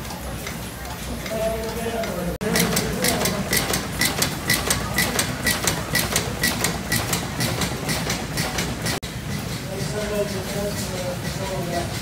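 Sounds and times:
steam engine valve gear clicking: 1.2s - 9.0s.

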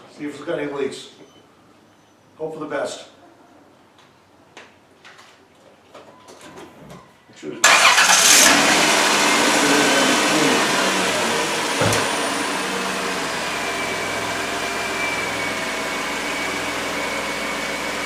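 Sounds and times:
car engine idling: 7.6s - 18.0s.

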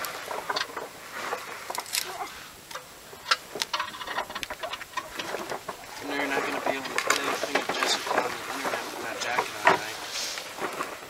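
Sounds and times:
low talk: 5.9s - 10.3s.

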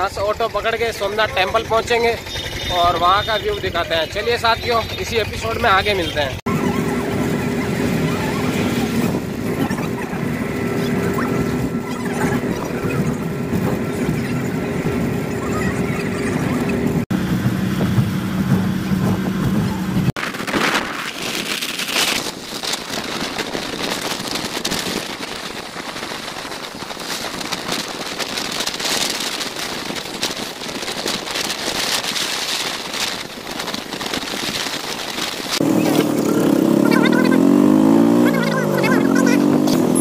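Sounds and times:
bus engine humming: 0.0s - 20.4s, 32.7s - 40.0s
wind and road noise: 0.0s - 40.0s.

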